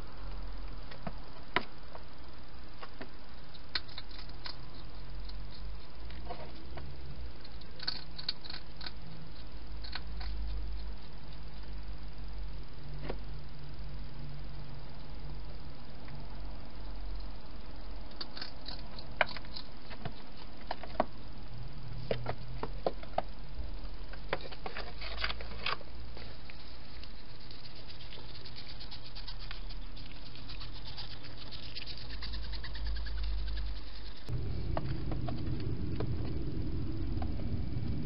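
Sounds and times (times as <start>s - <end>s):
steady low hum: 0.0s - 38.0s
hedgehog crunching food: 3.5s - 6.5s, 7.4s - 11.7s, 18.1s - 20.9s, 24.4s - 36.4s.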